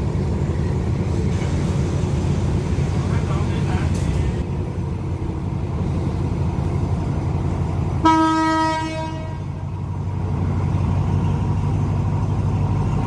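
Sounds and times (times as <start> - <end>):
idling diesel train rumble: 0.0 - 13.0
locomotive horn blast: 8.0 - 9.6.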